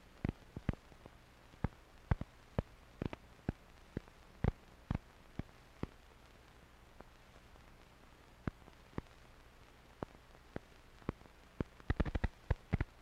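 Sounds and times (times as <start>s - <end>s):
faint low hum: 0.0s - 13.0s
film soundtrack pops and clicks: 0.2s - 6.1s, 8.4s - 9.2s, 10.0s - 13.0s.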